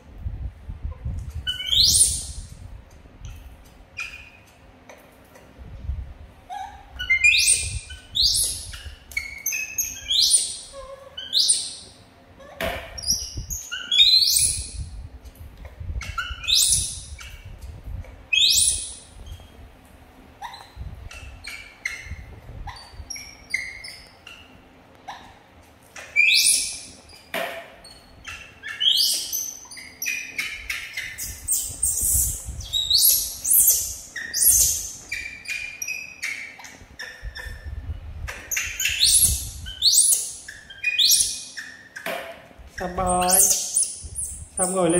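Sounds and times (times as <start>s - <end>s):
baby monkey squealing: 1.4s - 2.4s, 6.5s - 14.9s, 16.0s - 17.6s, 18.3s - 19.5s, 20.4s - 25.4s, 26.1s - 42.0s, 42.8s - 44.9s.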